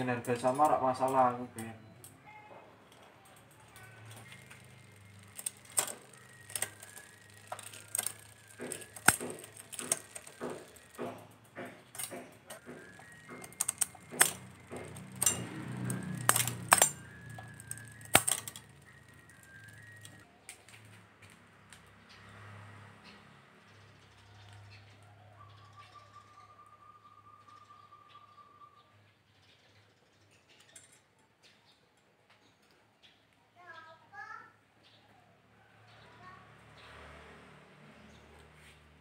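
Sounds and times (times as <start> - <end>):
bike chain shifting across cogs: 0.0 - 2.1, 2.8 - 20.7
bike shift levers clicking: 4.2 - 20.2.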